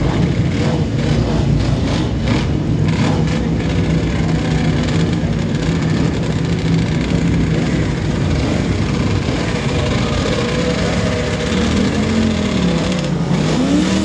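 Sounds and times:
motorcycle engines running: 0:00.0 - 0:14.0.

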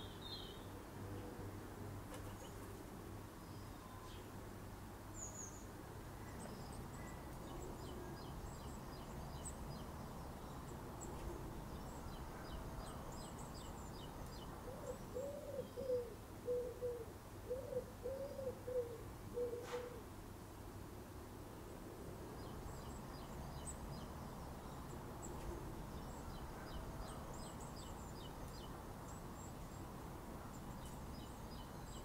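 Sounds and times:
pigeon cooing: 0:14.6 - 0:20.0.

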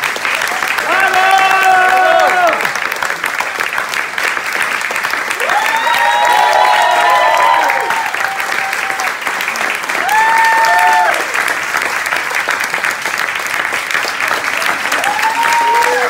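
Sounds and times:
audience applauding: 0:00.0 - 0:16.0
people shouting: 0:00.8 - 0:02.6.

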